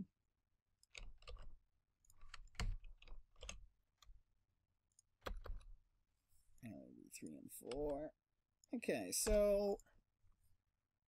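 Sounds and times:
computer keyboard and mouse clicks: 0:00.8 - 0:04.2, 0:04.9 - 0:05.8.

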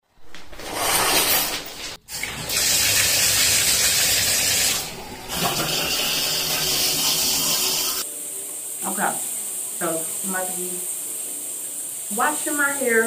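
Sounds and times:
shower spray running: 0:01.5 - 0:13.0.

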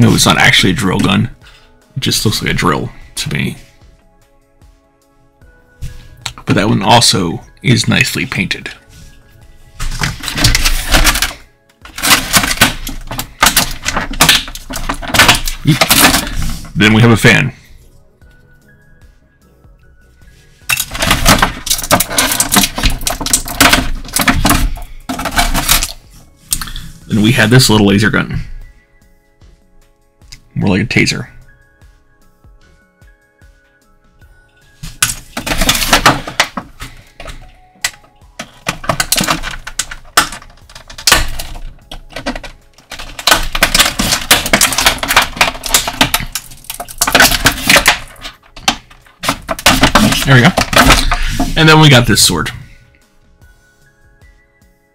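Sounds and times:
plastic packaging crinkling: 0:35.0 - 0:51.9.

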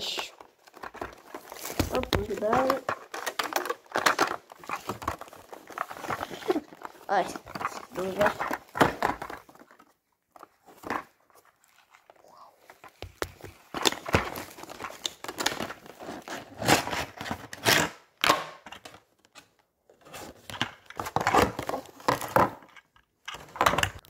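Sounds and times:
packaging crinkling and rustling: 0:00.0 - 0:24.0.

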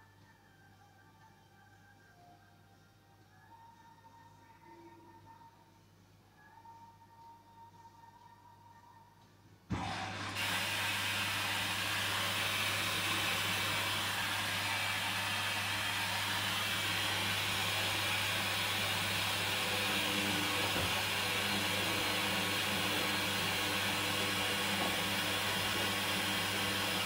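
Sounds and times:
washing machine drum motor: 0:09.7 - 0:27.0
water and laundry hissing in drum: 0:10.1 - 0:27.0.

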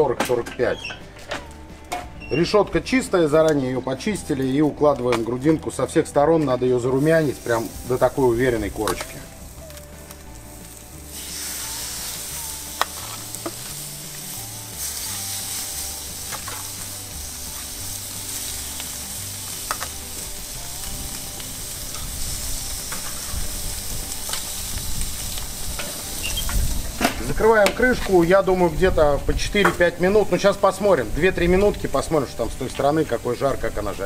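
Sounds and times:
meat sizzling on a grill: 0:06.4 - 0:34.0.

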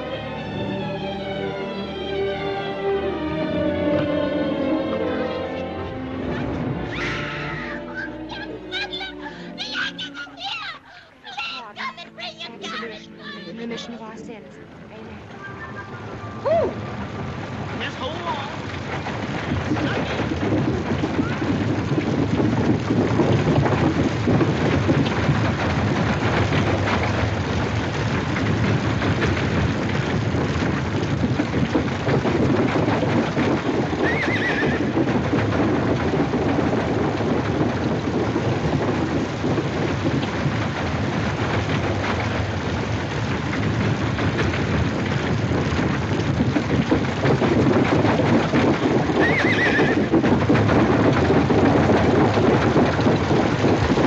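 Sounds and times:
loud rumbling noise: 0:00.0 - 0:54.0
horse whinnying: 0:06.9 - 0:08.1, 0:34.0 - 0:35.0, 0:49.1 - 0:50.1.

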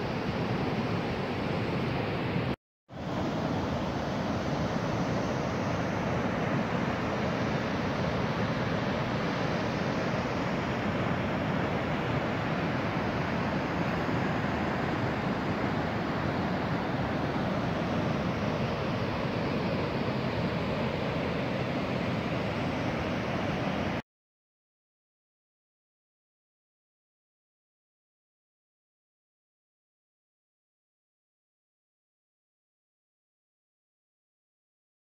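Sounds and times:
steady rushing noise: 0:00.0 - 0:24.0.

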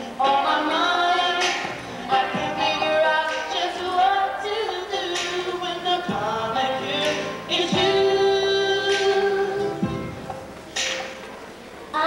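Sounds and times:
woman singing slow song: 0:00.0 - 0:10.0.

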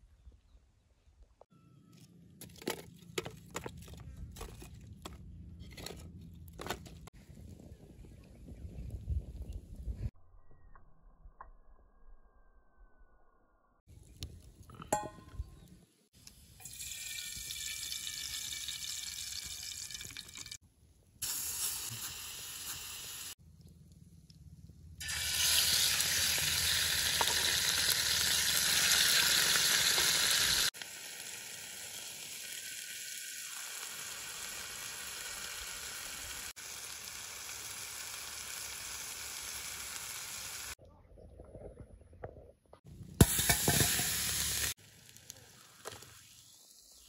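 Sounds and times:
chicken frying in hot oil: 0:16.6 - 0:20.6, 0:21.2 - 0:23.4, 0:25.0 - 0:40.8, 0:43.2 - 0:47.0.

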